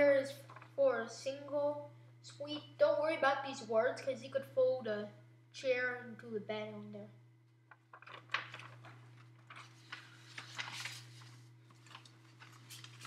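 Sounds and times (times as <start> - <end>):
steady low hum: 0.0 - 13.0
paper rustling and shuffling: 0.3 - 0.8, 7.7 - 13.0.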